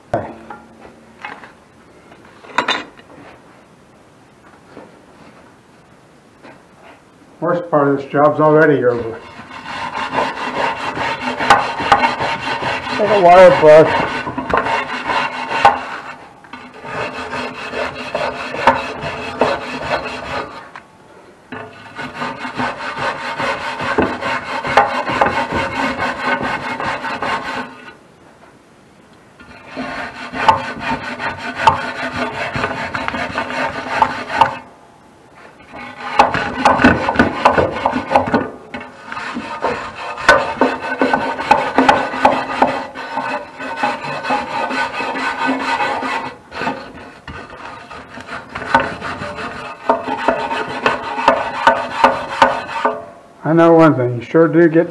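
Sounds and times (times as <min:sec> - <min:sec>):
wire brush scrubbing metal: 0:08.1 - 0:20.8, 0:21.5 - 0:28.0, 0:29.4 - 0:34.7, 0:35.5 - 0:54.8.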